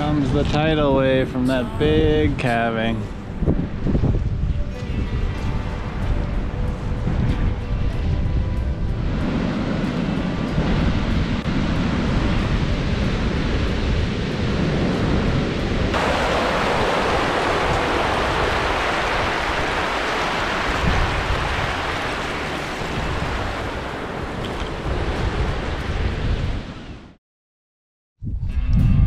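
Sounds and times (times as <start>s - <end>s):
wind on microphone: 0.0s - 27.1s, 28.2s - 29.0s
wave surging up gravel beach: 9.2s - 26.6s
water rushing over stones and ice: 15.9s - 25.0s.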